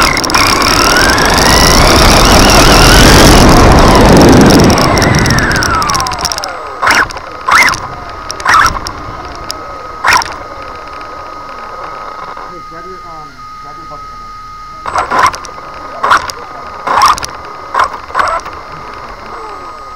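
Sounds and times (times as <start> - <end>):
road noise: 0.0 - 12.6
electric motor whine: 0.0 - 19.9.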